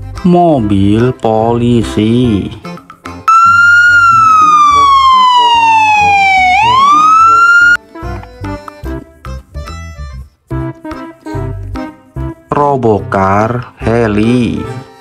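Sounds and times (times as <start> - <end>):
background music with steady beat: 2.6 - 12.5
police siren wailing: 3.3 - 7.8.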